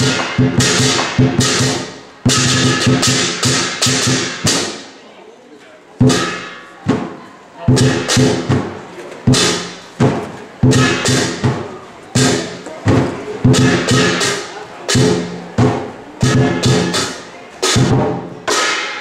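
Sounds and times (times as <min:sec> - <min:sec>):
big drum beating: 0:00.0 - 0:04.9, 0:06.0 - 0:19.0
hand cymbals crashing: 0:00.0 - 0:04.9, 0:06.0 - 0:06.8, 0:09.3 - 0:09.9, 0:10.6 - 0:11.6, 0:13.4 - 0:15.6, 0:16.2 - 0:19.0.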